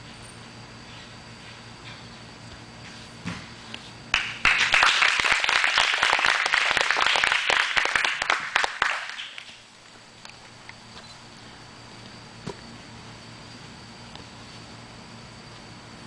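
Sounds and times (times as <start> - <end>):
applause: 4.1 - 9.6.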